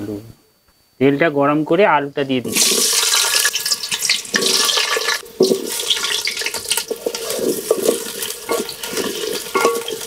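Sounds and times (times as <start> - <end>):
potatoes sizzling in hot oil: 2.5 - 10.0.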